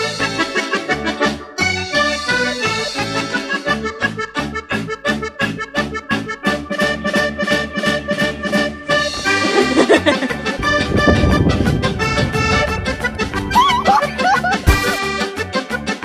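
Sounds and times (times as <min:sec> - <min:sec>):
background music with quick beat: 0:09.0 - 0:16.0.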